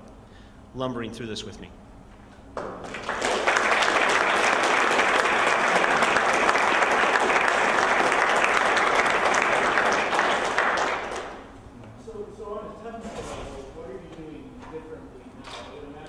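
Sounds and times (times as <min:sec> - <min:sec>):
audience applause: 0:02.6 - 0:11.5.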